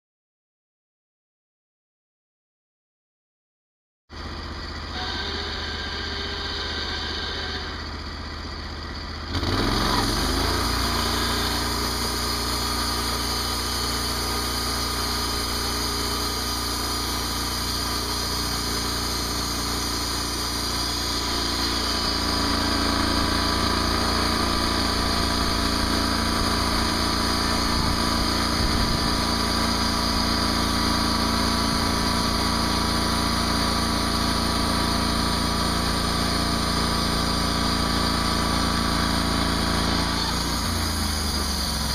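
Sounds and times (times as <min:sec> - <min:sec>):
gasoline engine idling and revving: 0:04.2 - 0:41.9
band saw cutting log: 0:04.9 - 0:07.9, 0:09.3 - 0:41.9.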